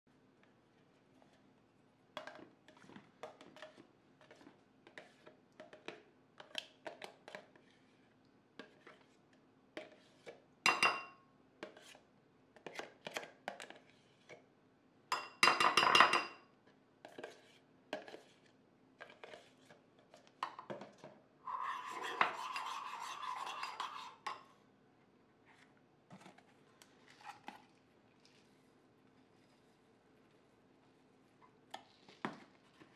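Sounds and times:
metal spoon clinking on bowl: 0:10.7 - 0:11.2, 0:15.1 - 0:16.4.

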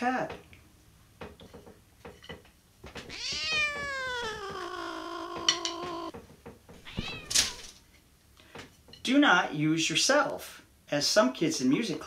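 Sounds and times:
cat yowling: 0:03.0 - 0:06.1, 0:06.8 - 0:07.8.

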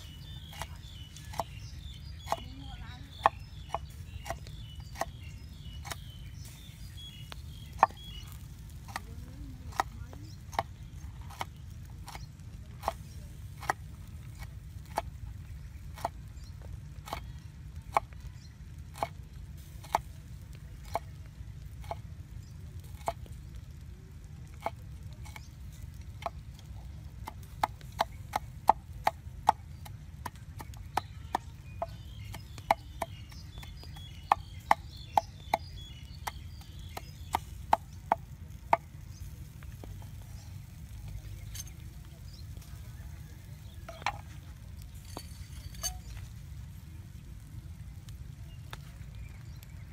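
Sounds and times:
cleaver chopping on wooden board: 0:03.2 - 0:06.1, 0:07.6 - 0:08.2, 0:09.7 - 0:15.1, 0:27.2 - 0:38.9.

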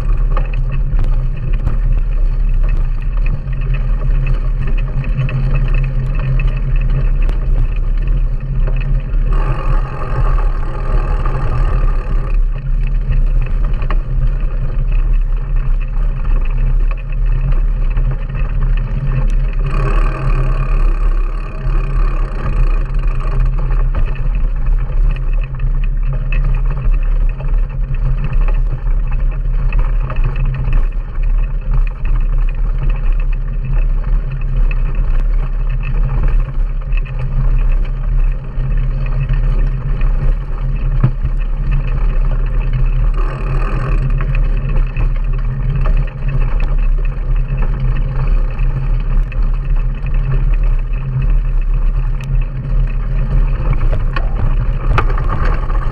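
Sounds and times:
bike tyre rumble on sandy track: 0:00.0 - 0:55.9
small rattling clicks: 0:00.0 - 0:55.9
wind buffeting: 0:35.3 - 0:55.9.

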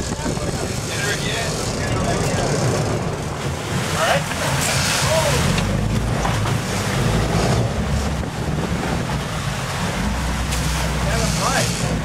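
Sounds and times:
boat engine rumbling: 0:00.0 - 0:12.0
churned water rushing: 0:00.0 - 0:12.0
wind buffeting microphone: 0:00.0 - 0:12.0.

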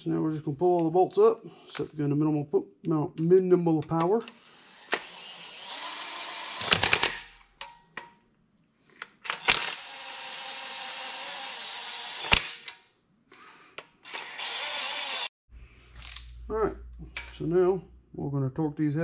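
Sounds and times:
impact gun spinning bolts: 0:06.5 - 0:07.8.

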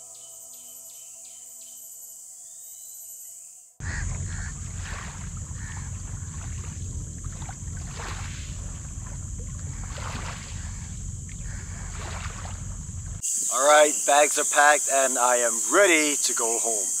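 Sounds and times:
waves lapping at shore: 0:03.8 - 0:13.2
wind buffeting microphone: 0:03.8 - 0:13.2.

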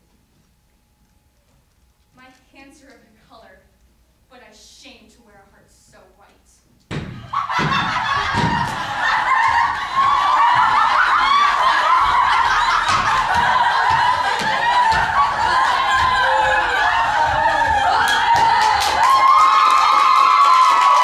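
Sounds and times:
children laughing and shouting: 0:07.2 - 0:21.0.

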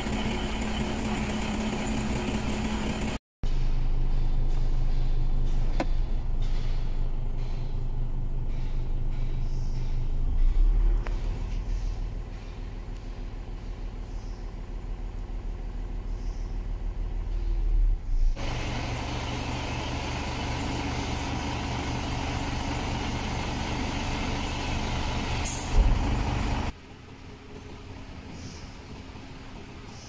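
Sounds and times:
diesel truck engine running: 0:00.0 - 0:30.0.

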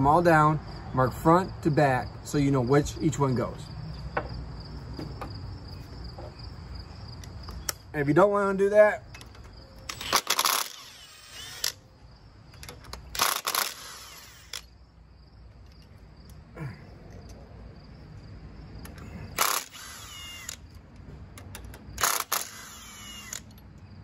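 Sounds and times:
cordless power tool whirring: 0:09.9 - 0:11.8, 0:13.2 - 0:14.7, 0:19.4 - 0:20.6, 0:22.0 - 0:23.5.

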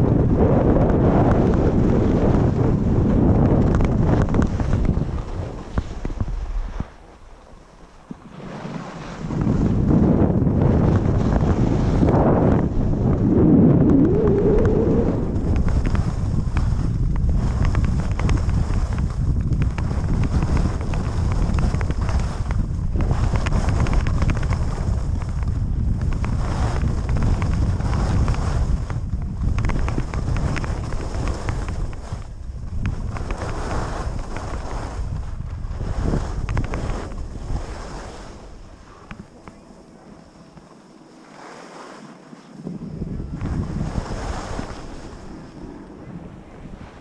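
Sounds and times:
wind buffeting microphone: 0:00.0 - 0:47.0
skis scraping on snow: 0:00.9 - 0:14.0, 0:15.0 - 0:25.2, 0:25.8 - 0:47.0.

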